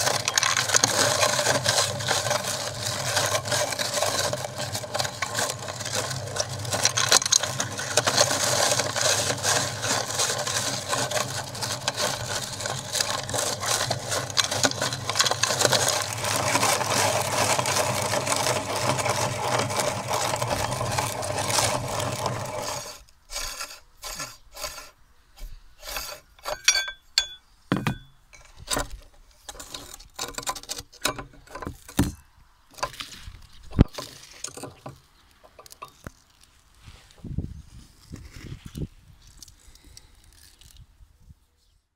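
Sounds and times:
meat grinder crunching candy: 0.0 - 24.9
scattered clicks and knocks: 26.4 - 33.1, 33.7 - 36.2.

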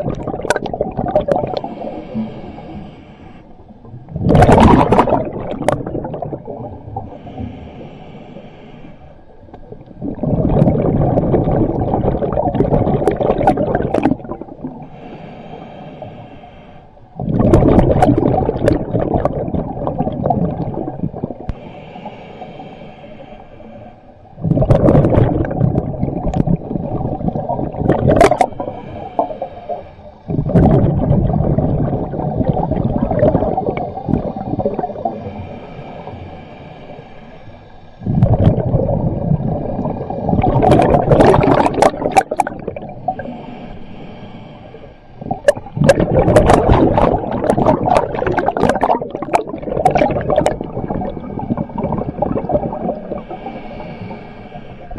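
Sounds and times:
underwater bubbles gurgling: 0.0 - 8.0, 9.2 - 16.4, 17.0 - 22.7, 24.2 - 54.9
diver breathing: 1.3 - 3.8, 6.9 - 9.5, 14.3 - 17.2, 20.6 - 24.4, 28.2 - 38.4, 39.6 - 48.6, 50.0 - 54.9.

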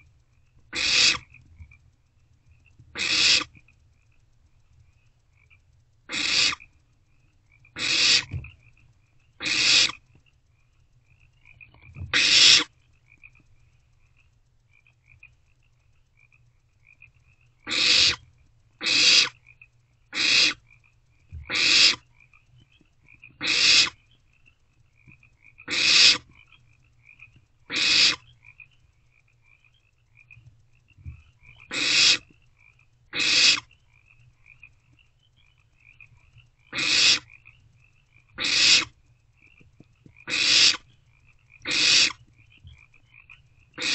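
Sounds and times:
owlets hissing screeches: 38.4 - 38.9, 41.7 - 42.2.

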